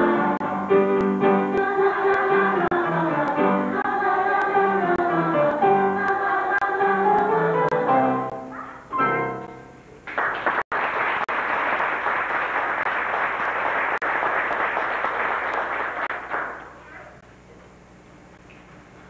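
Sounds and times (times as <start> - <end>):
audience applauding: 10.0 - 16.9.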